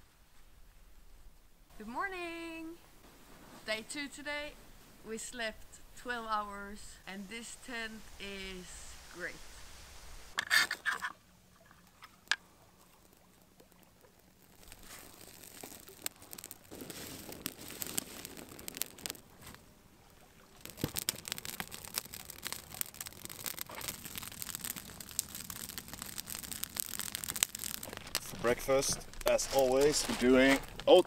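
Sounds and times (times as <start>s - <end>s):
campfire crackling: 0.1s - 31.0s
sharp snaps and pops: 10.3s - 31.0s.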